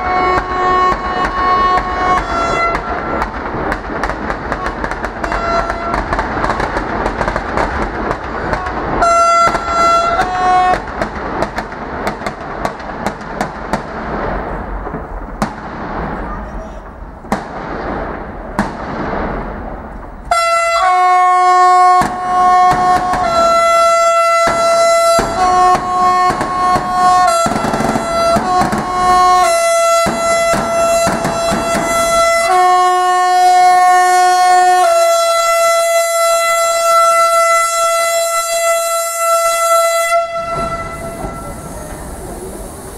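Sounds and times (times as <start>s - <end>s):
train horn: 0.0s - 3.2s, 4.6s - 6.1s, 8.5s - 10.9s, 20.3s - 42.0s
hissing crackle of flares: 0.0s - 37.2s, 39.6s - 42.9s
firecrackers banging: 0.0s - 42.9s.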